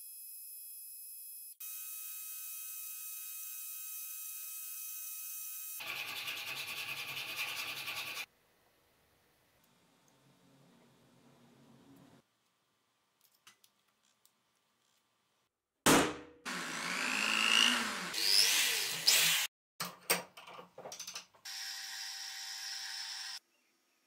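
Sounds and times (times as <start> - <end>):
electric drill boring into metal: 16.5 - 19.5.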